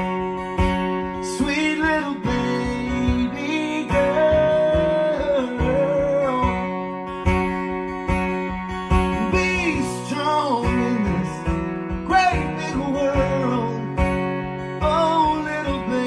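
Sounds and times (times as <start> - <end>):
strummed acoustic guitar: 0.0 - 16.0
man singing: 1.2 - 7.0, 9.0 - 16.0.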